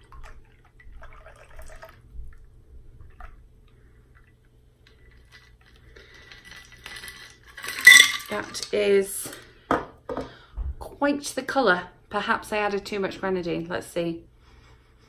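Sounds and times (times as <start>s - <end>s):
small drips: 0.0s - 6.6s
liquid trickling into glass: 0.1s - 2.0s.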